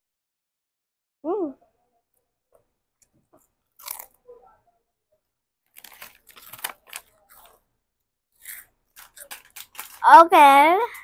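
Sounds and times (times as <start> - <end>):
plastic wrapper crinkling: 5.7 - 7.6, 8.5 - 10.2.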